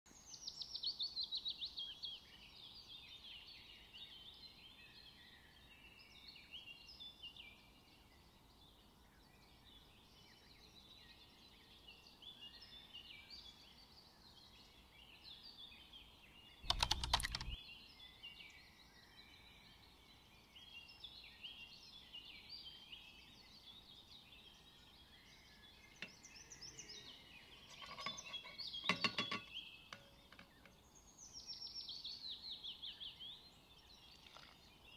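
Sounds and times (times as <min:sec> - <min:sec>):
small birds chirping: 0:00.1 - 0:34.9
clicks: 0:16.7 - 0:17.6.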